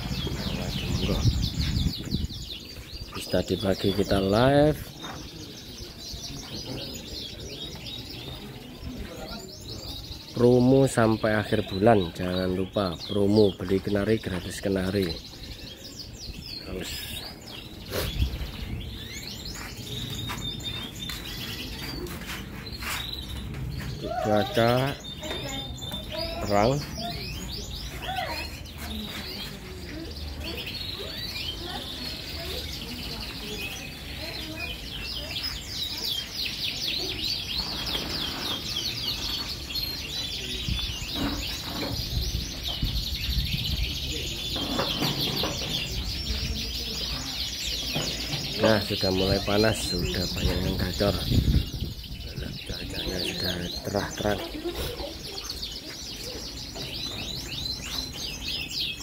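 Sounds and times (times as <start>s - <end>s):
canaries singing: 0.0s - 59.0s.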